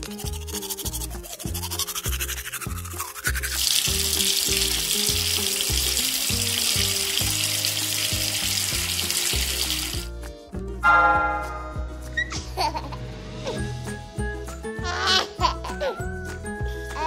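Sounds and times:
toothbrush scrubbing: 0.0s - 7.4s
background music: 0.0s - 17.0s
tap water running: 3.3s - 10.1s.

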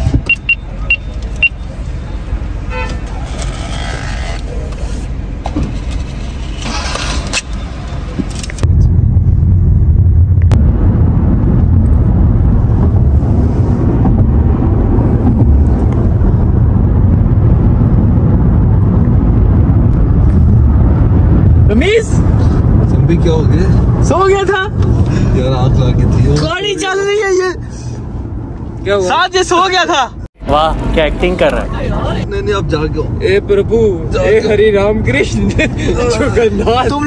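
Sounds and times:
car engine and road rumble: 0.0s - 37.0s
electronic beeps from card terminal: 0.3s - 1.7s.

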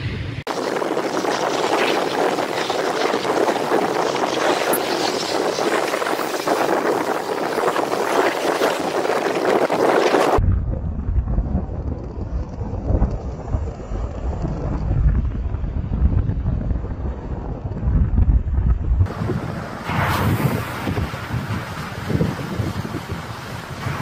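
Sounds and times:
wind buffeting microphone: 0.0s - 24.0s
tyres hissing on wet road: 0.5s - 10.4s, 19.1s - 24.0s
low car rumble: 10.4s - 24.0s.

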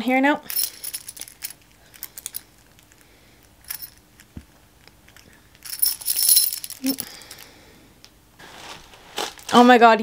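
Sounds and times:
chain necklace jangling: 0.4s - 7.6s.

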